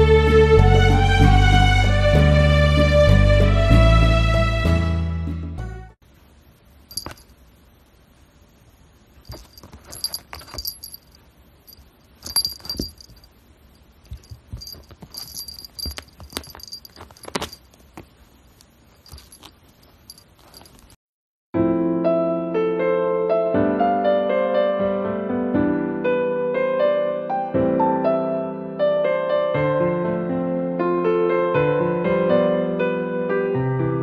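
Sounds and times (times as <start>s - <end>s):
small bell jingling: 6.9s - 7.3s, 9.2s - 13.4s, 14.1s - 17.8s, 19.0s - 21.0s
soft taps and rustles: 14.0s - 21.0s.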